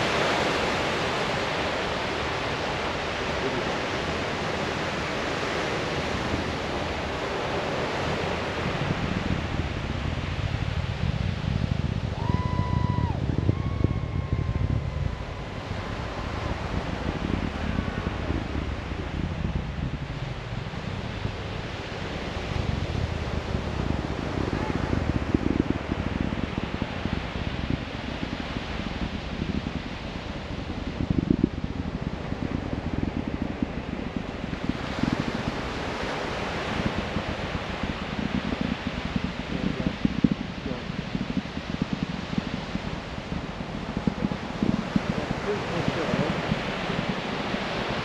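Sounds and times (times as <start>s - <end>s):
distant rocket roar: 0.0s - 48.0s
low crackling rumble: 0.0s - 48.0s.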